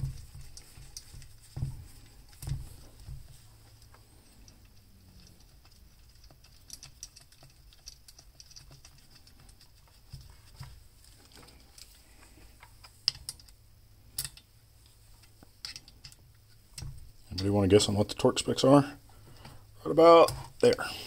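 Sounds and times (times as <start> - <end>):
small metal clicks of screws: 4.3 - 9.6, 12.8 - 14.5.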